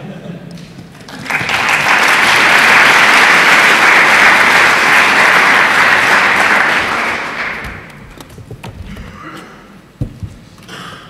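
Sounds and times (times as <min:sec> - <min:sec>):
audience applauding: 0:00.9 - 0:08.0.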